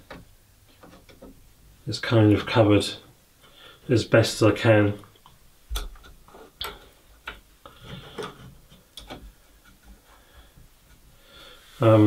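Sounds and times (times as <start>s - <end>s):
light clicks and taps: 5.0s - 11.0s.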